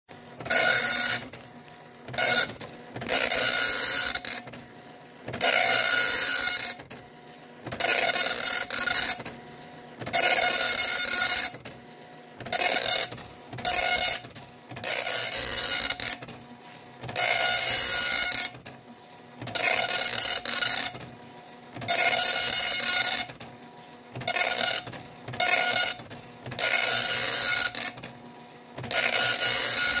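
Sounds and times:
dot-matrix printer printing: 0.1s - 30.0s
paper advancing in printer: 0.1s - 30.0s.

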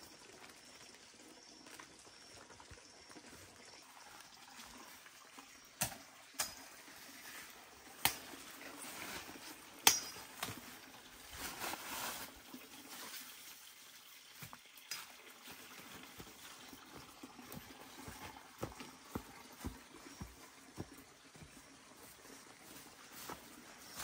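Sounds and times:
faint water trickle: 0.0s - 24.0s
machete chopping undergrowth: 5.8s - 6.7s, 8.0s - 8.4s, 9.8s - 10.6s.

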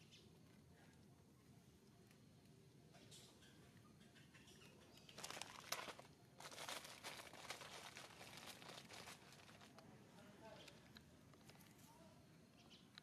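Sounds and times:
faint crinkly rustling: 4.9s - 12.2s
sharp crackle: 5.0s - 9.8s.

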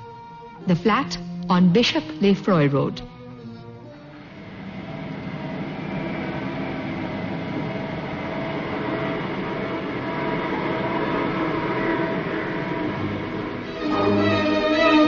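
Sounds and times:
faint hum: 0.0s - 15.0s
lift mechanical rumble: 3.8s - 15.0s.

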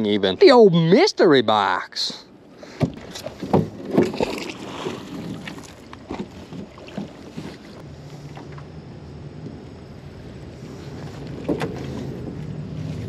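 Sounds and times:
steady low hum: 1.3s - 13.0s
hard objects knocking in a boat: 2.7s - 7.6s.

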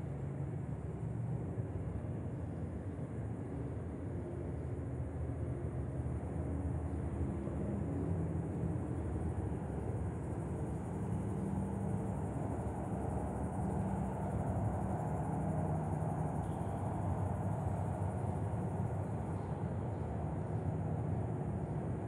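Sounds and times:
constant low rumble: 0.0s - 22.0s
cicadas buzzing: 10.5s - 19.6s.

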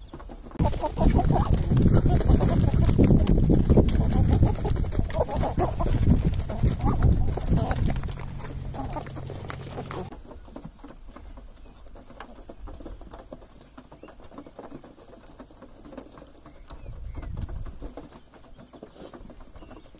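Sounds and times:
beaks tapping on feed: 0.0s - 19.9s
soft bird calls: 0.0s - 19.9s.

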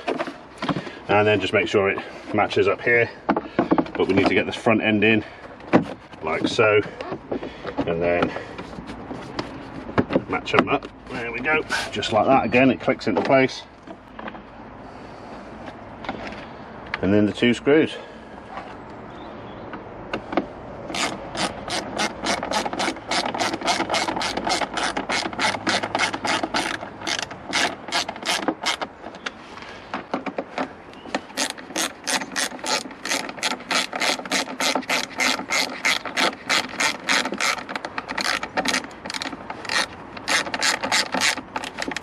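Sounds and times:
hand ratchet clicking: 20.9s - 28.9s, 31.3s - 42.0s.

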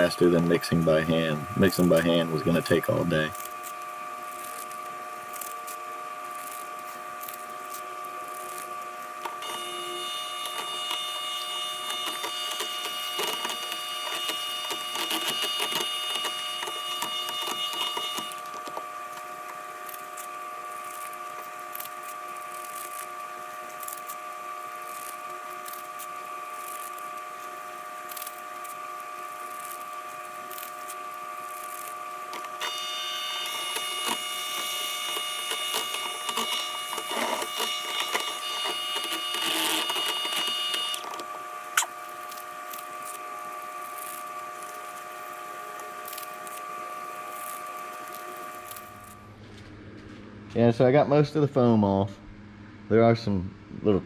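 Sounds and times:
electric hand mixer whining: 6.4s - 20.2s, 31.6s - 49.1s.

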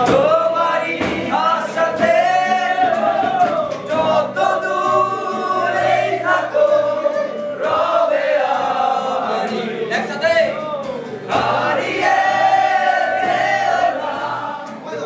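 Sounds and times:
acoustic guitar chords: 0.0s - 15.0s
young men singing together: 0.0s - 15.0s.

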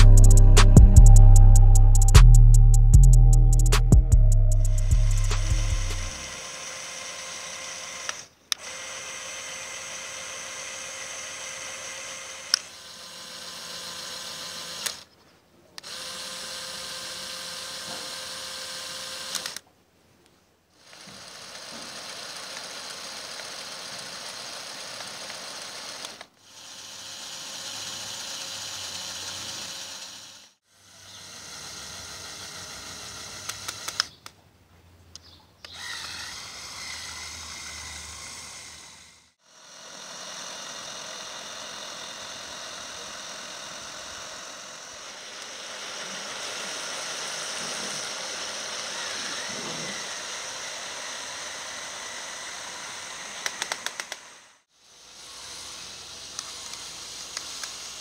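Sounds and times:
toy motors and gears whirring: 4.5s - 15.2s, 15.8s - 19.6s, 20.8s - 34.4s, 35.6s - 58.0s
sharp clicks: 19.3s - 19.6s, 33.4s - 34.4s, 53.4s - 54.3s, 56.3s - 57.8s.

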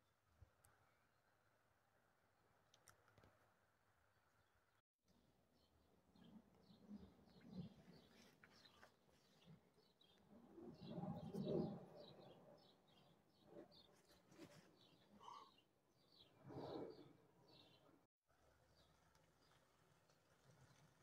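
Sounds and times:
faint bird chirping: 5.5s - 18.1s.

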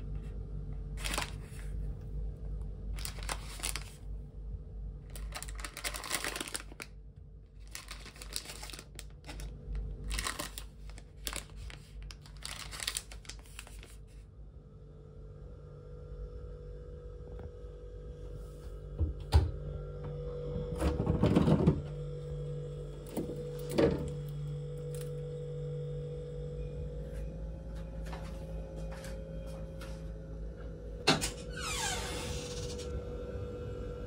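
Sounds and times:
steady low hum: 0.0s - 34.0s
cabinet doors opening and shutting: 20.6s - 21.9s
closet doors scraping open: 31.1s - 32.9s.

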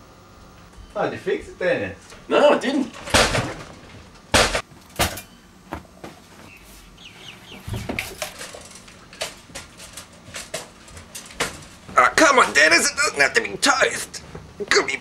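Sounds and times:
toaster being smashed: 2.9s - 3.8s.

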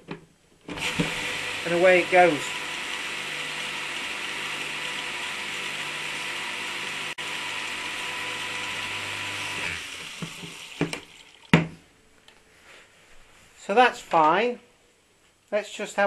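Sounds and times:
electric pump motor humming: 0.7s - 11.2s.

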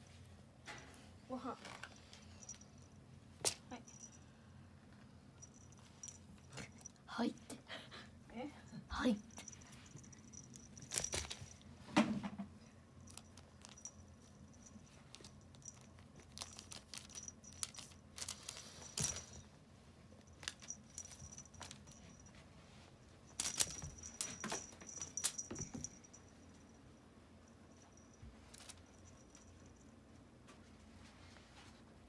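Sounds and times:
collar bell jingling: 3.7s - 4.3s, 5.4s - 7.0s, 9.1s - 11.6s, 13.0s - 19.4s, 20.3s - 22.4s, 23.3s - 30.0s.

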